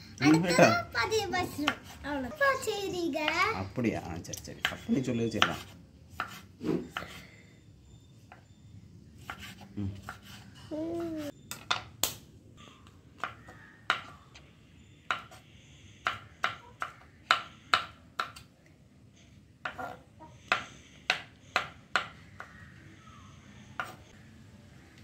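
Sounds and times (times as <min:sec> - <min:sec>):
knife chopping on wooden board: 0:05.4 - 0:06.4, 0:20.5 - 0:22.6.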